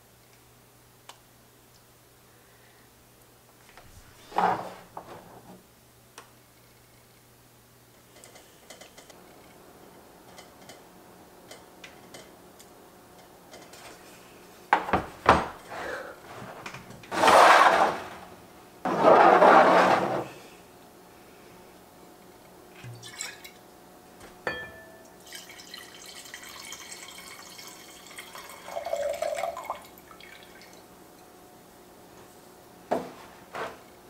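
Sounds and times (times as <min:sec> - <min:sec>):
tableware scraping on table: 0:04.2 - 0:05.2, 0:17.1 - 0:18.2, 0:18.9 - 0:20.4
tableware knock: 0:24.5 - 0:25.0.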